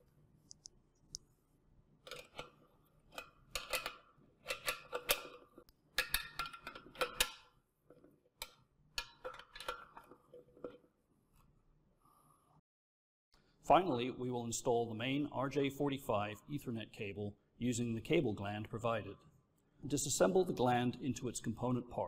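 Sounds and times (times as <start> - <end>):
wrench clicking and scraping on nuts: 2.1 - 7.5.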